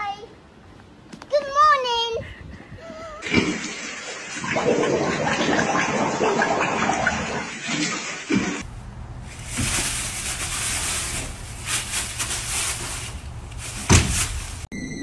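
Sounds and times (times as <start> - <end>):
animals scuffling in dry leaves: 8.6 - 14.7.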